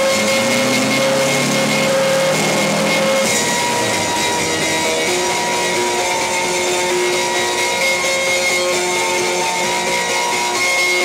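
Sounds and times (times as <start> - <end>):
car engine hum: 0.0 - 6.9
road noise: 0.0 - 8.0
music with long held notes: 0.0 - 11.0.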